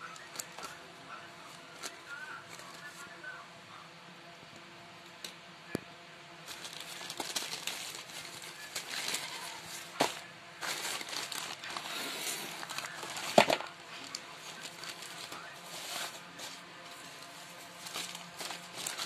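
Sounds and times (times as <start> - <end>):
plastic and bubble wrap crinkling: 0.0 - 0.8, 1.4 - 3.1, 6.4 - 19.0.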